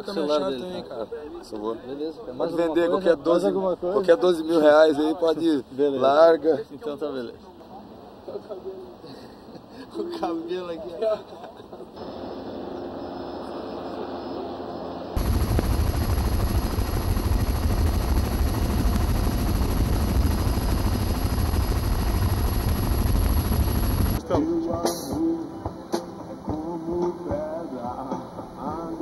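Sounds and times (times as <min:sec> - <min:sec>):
helicopter flying overhead: 0:12.0 - 0:24.2
helicopter rotor and engine rumble: 0:12.0 - 0:24.2
man singing into a microphone: 0:24.2 - 0:29.0.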